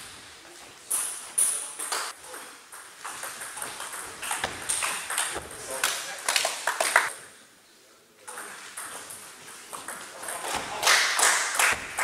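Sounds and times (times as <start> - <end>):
table tennis ball hits: 2.7 - 5.6, 8.3 - 12.0.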